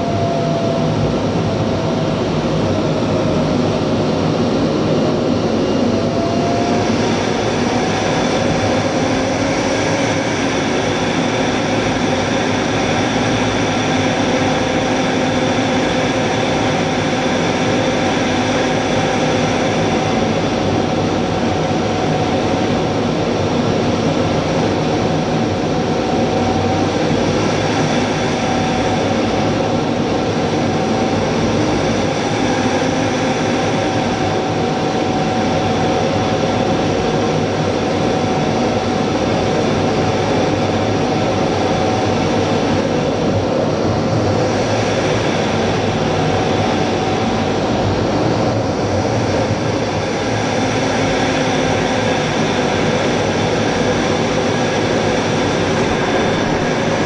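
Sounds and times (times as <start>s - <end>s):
jet engines running: 0.0s - 57.0s
steady whining tones: 0.0s - 57.0s
rush of airflow: 42.6s - 57.0s.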